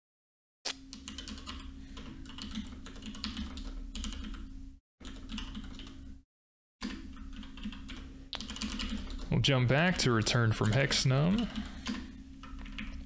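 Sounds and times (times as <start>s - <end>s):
low steady hum: 6.9s - 13.0s.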